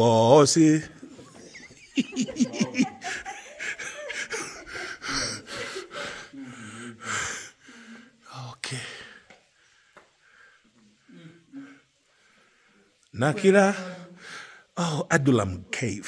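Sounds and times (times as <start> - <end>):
person laughing: 1.4 - 6.4
breathy exhalations: 3.0 - 13.0, 13.8 - 14.8.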